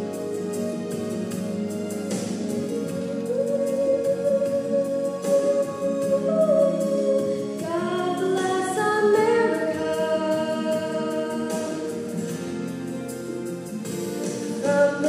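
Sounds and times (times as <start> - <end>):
piano accompaniment: 0.0 - 15.0
girl singing into microphone: 2.8 - 12.3, 14.5 - 15.0.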